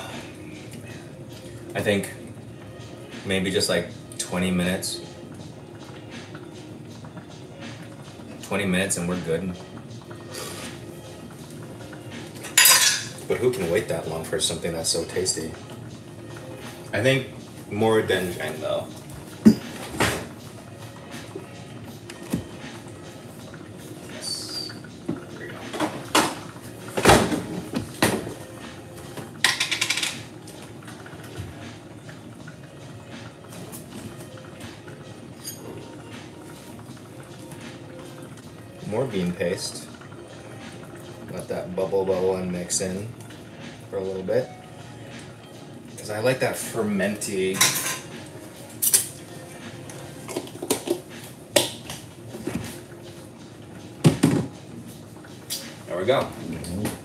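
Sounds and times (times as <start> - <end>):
kitchen things knocking and clunking: 19.4 - 20.3, 29.1 - 30.3, 54.0 - 54.6
kitchen items knocking and clicking: 29.1 - 30.3.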